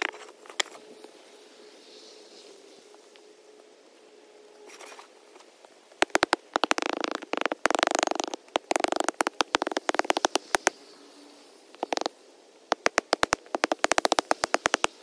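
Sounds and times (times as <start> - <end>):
hand tamper clicks and knocks: 6.0 - 10.7, 11.8 - 12.1, 12.7 - 14.9.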